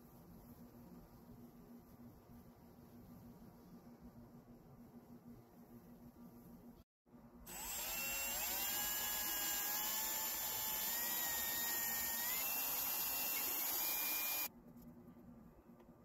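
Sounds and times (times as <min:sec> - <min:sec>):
hand drill whining: 0:07.5 - 0:14.5.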